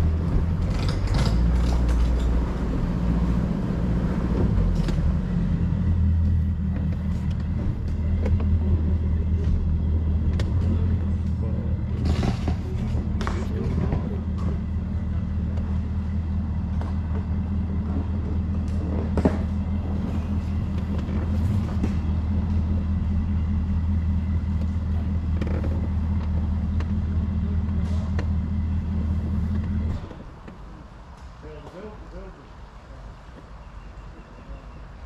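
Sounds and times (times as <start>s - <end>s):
outboard motor idling: 4.3s - 30.2s.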